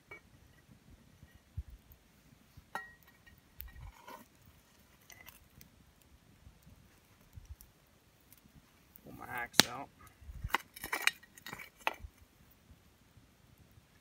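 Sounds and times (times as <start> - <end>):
coals raked with clinks and scrapes: 0.0 - 12.6.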